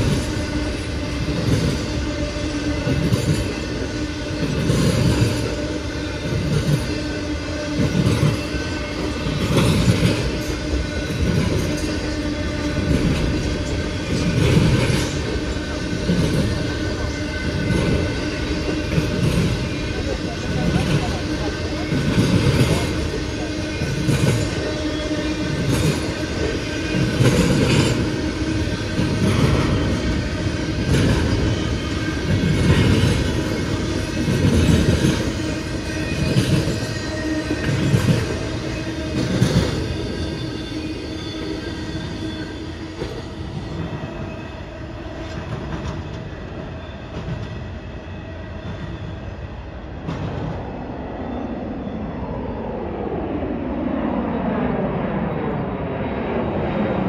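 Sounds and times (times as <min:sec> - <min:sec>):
train wheels clacking: 0:00.0 - 0:44.3
train rumble: 0:00.0 - 0:57.0.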